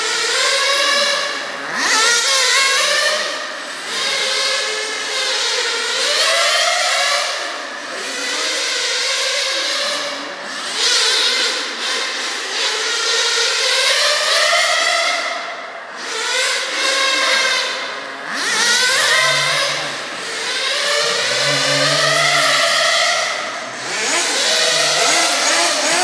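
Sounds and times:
rc car engines whining: 0.0 - 26.0.

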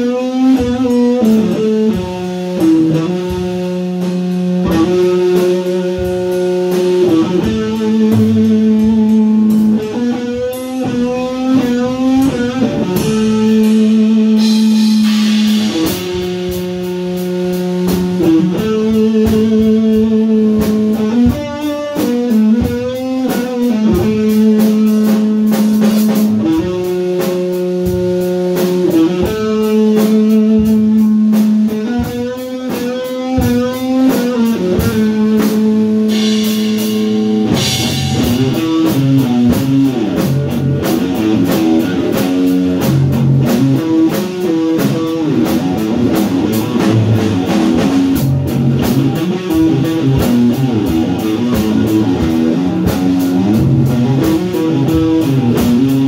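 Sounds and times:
drum kit hits: 0.0 - 56.0
electric guitar sustained notes: 33.2 - 56.0.

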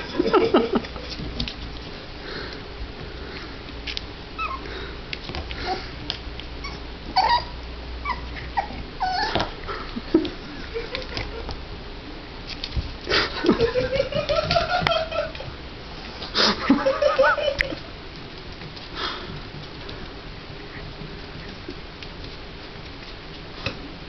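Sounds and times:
puppy whimpering: 4.4 - 4.7, 6.6 - 9.5.

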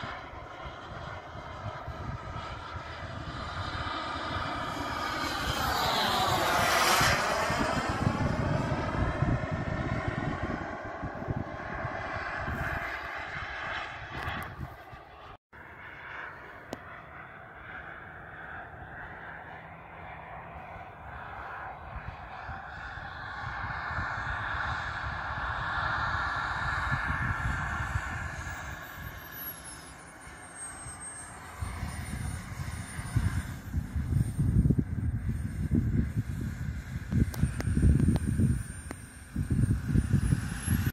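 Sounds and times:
uneven low rumble: 0.0 - 15.4
wind rumbling on microphone: 0.0 - 15.4, 16.2 - 40.9
model jet engine whine: 0.0 - 40.9.

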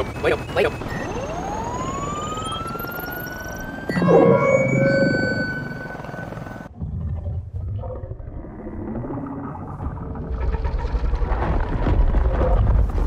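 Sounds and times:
deep rumble: 3.9 - 13.0.

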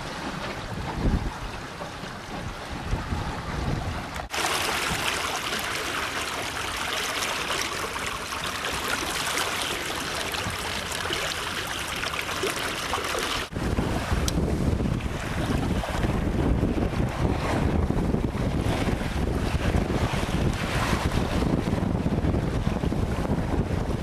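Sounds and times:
wind buffeting microphone: 0.0 - 5.3, 13.4 - 24.0
water rushing along hull: 0.0 - 24.0.

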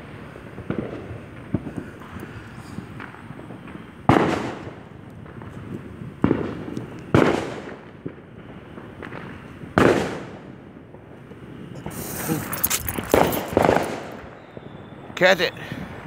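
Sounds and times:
loud firework bangs: 0.0 - 11.1, 11.7 - 15.2.

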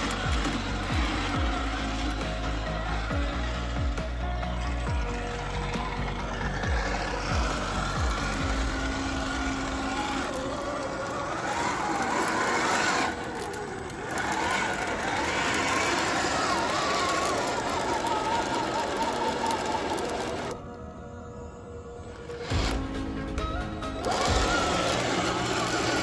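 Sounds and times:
truck rolling over rough ground: 0.0 - 20.6
toy truck electric motor whining: 0.0 - 20.8, 23.8 - 26.0.

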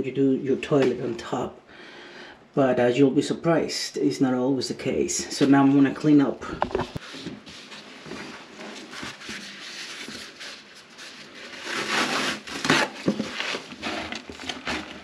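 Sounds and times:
handling rustling: 6.5 - 15.0.

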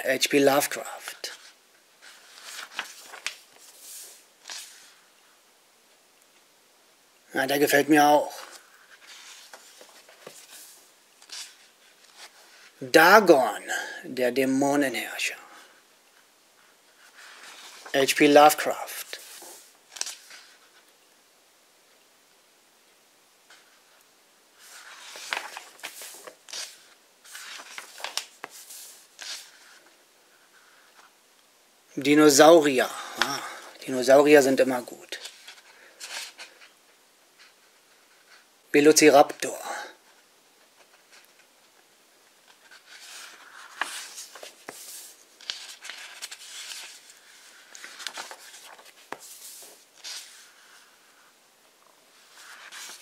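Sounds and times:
book pages rustling: 0.6 - 5.3, 8.4 - 12.8, 16.2 - 21.0, 24.6 - 31.1, 33.0 - 33.8, 34.7 - 36.8, 40.0 - 53.0
pages slapping down: 2.1 - 5.0, 8.5 - 12.4, 24.6 - 29.5, 42.5 - 50.5, 52.3 - 53.0.

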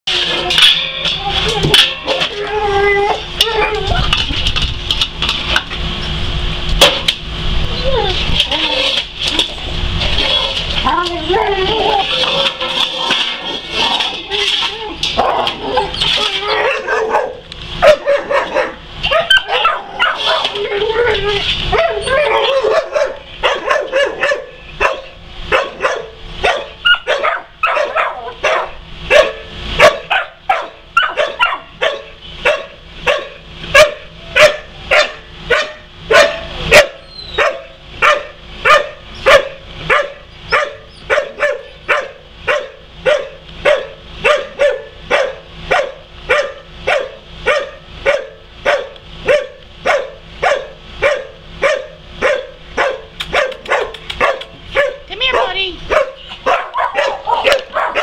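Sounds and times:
dog barking: 16.6 - 20.5, 21.7 - 58.0.

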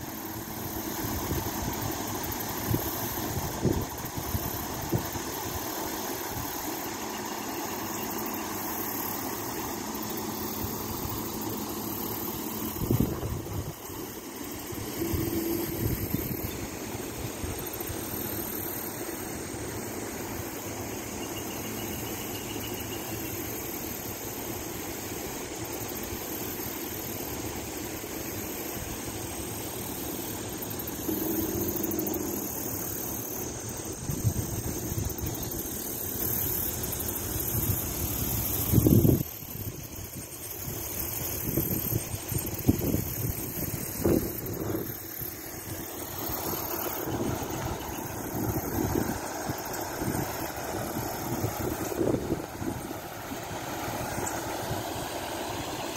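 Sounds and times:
waterfall rushing: 44.0 - 55.9.

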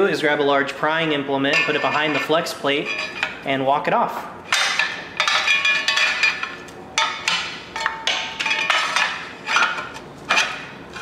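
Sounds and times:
metal plate clanking and ringing: 4.5 - 10.7.

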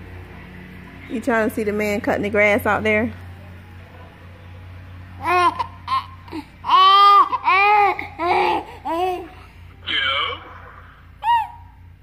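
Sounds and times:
baby babbling: 5.2 - 9.5, 11.2 - 11.7.

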